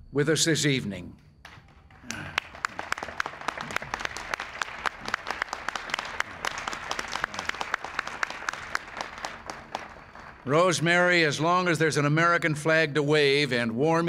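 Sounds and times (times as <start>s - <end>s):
single hand claps: 1.4s - 10.4s
crowd applauding: 1.5s - 11.4s.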